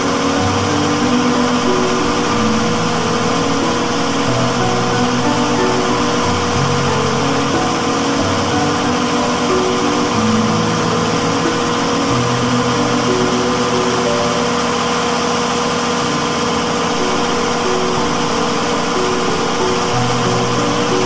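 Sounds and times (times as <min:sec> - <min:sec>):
background music: 0:00.0 - 0:21.0
generator engine running: 0:00.0 - 0:21.0.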